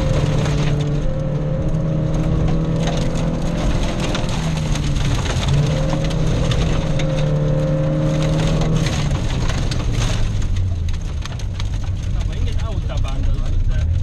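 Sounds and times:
car engine running hard: 0.0s - 14.0s
tyres crunching gravel: 0.0s - 14.0s
stones rattling against underbody: 1.9s - 13.1s.

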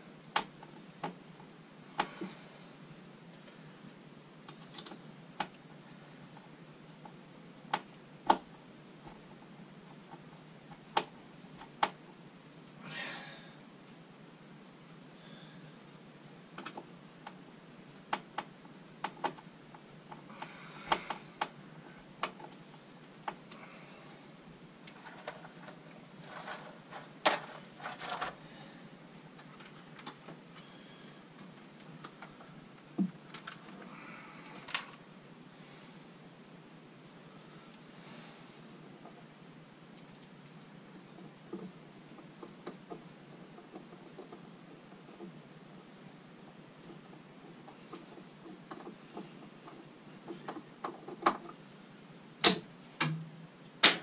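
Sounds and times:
clicks and knocks of wiring work: 0.3s - 1.2s, 4.5s - 5.6s, 6.4s - 9.2s, 16.6s - 17.4s, 18.1s - 21.6s, 22.2s - 23.6s, 24.8s - 28.4s, 29.4s - 30.7s, 31.4s - 33.9s, 46.8s - 51.6s, 52.4s - 53.2s
rustling: 19.3s - 35.0s.

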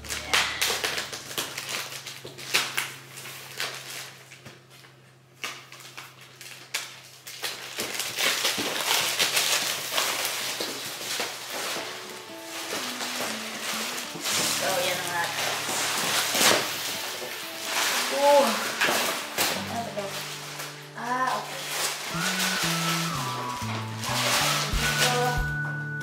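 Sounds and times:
plastic wrap crinkling: 0.0s - 25.8s.

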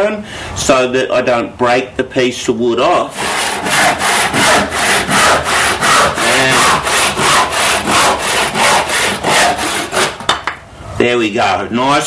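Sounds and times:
handsaw cutting wood: 3.1s - 10.3s.

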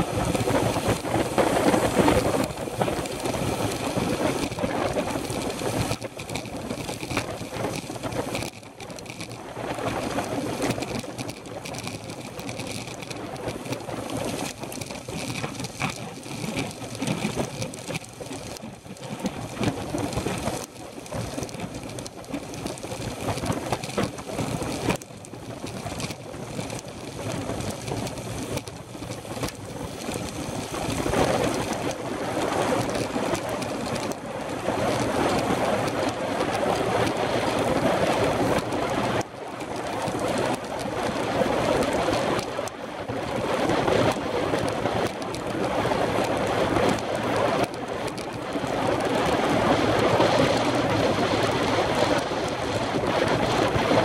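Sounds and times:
bicycle tyre noise on tarmac: 0.0s - 54.0s
wind rushing over microphone: 0.0s - 54.0s.

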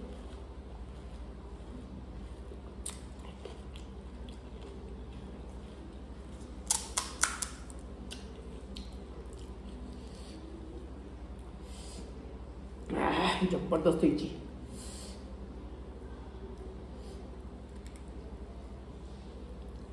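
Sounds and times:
food crunching: 0.0s - 10.1s
person chewing food: 0.0s - 11.5s.

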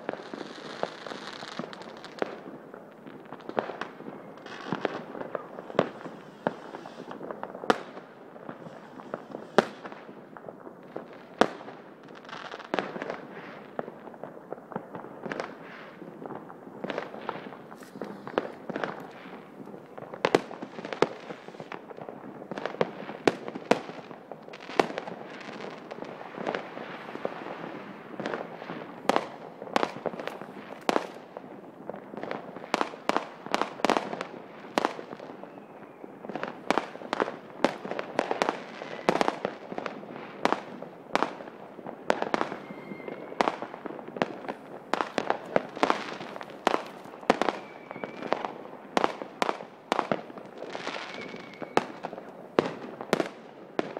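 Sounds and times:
fireworks bangs: 0.0s - 53.9s
fireworks crackling: 0.0s - 53.9s
faint firework whistles: 3.8s - 10.2s, 16.8s - 19.5s, 32.7s - 39.5s, 42.1s - 53.4s.

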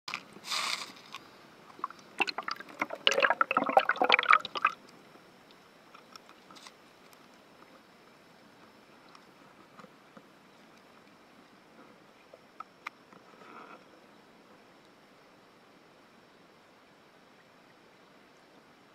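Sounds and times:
faint underwater hush: 1.7s - 4.8s
water splashing and gurgling: 1.7s - 4.8s.

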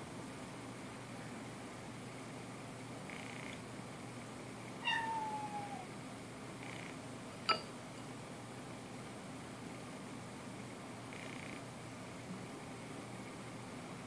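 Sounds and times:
cat meowing: 4.8s - 5.9s.

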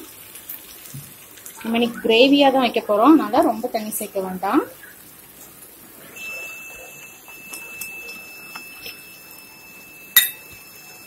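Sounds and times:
thin steady high tone: 6.1s - 11.0s.

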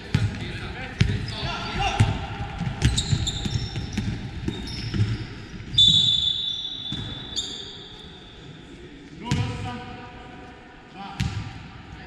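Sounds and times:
basketball bouncing: 2.0s - 5.2s
sneaker squeaks on floor: 2.8s - 8.3s.

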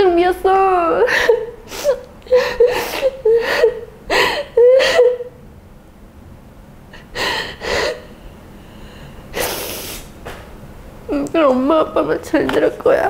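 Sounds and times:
woman sobbing: 0.8s - 5.4s, 7.0s - 8.1s.

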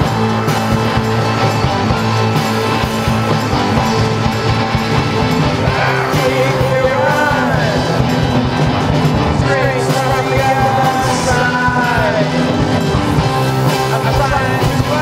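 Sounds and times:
punk rock band playing: 0.0s - 15.0s
person singing: 5.6s - 8.2s, 9.2s - 12.8s, 13.6s - 15.0s.

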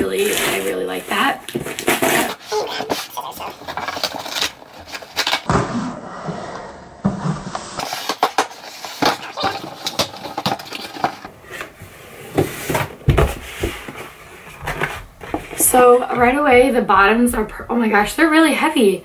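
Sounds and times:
cardboard tearing and rustling: 1.5s - 5.6s, 7.5s - 11.7s
box being set down: 12.3s - 14.0s.

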